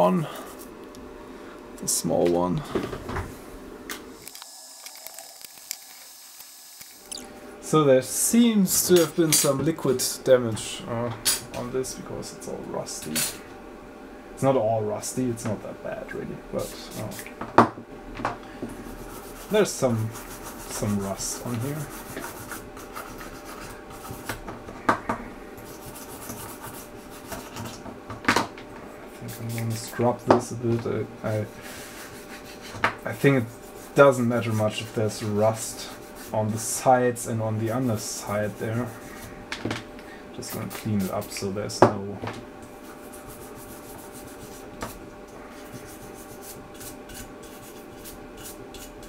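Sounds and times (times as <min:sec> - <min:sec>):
brush scrubbing circuit board: 0:18.8 - 0:24.3, 0:25.6 - 0:27.8, 0:31.6 - 0:39.2, 0:42.8 - 0:49.0.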